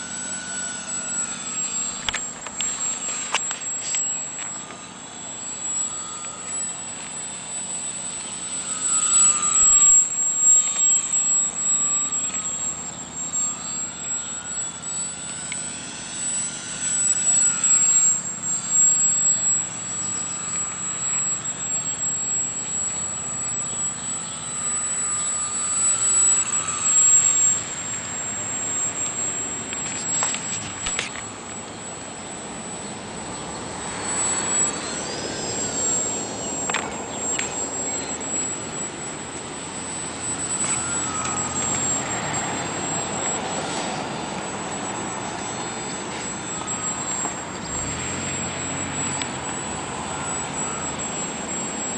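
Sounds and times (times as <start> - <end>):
model plane motor buzzing: 0.0 - 51.9.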